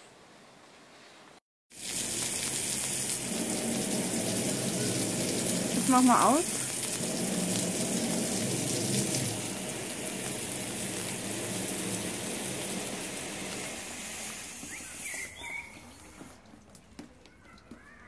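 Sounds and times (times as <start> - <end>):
water spraying on window: 1.7 - 17.8
bird chirping: 14.6 - 16.2.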